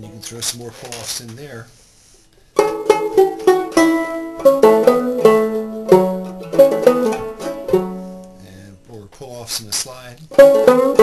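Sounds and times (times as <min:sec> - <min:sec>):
banjo plucked notes: 0:02.6 - 0:08.7, 0:10.3 - 0:11.0.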